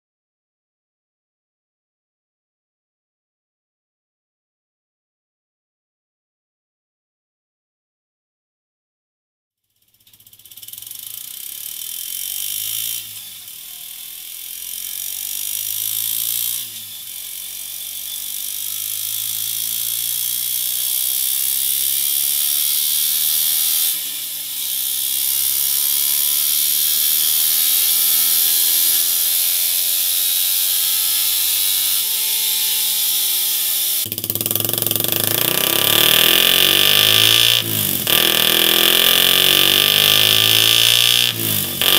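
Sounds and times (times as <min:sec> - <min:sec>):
motorcycle engine revving through gears: 0:09.7 - 0:41.9.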